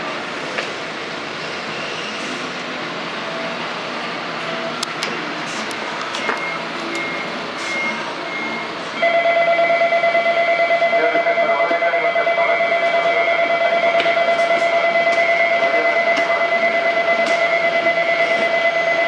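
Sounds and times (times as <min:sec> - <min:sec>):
station background noise: 0:00.0 - 0:19.0
electric departure bell ringing: 0:09.0 - 0:11.0.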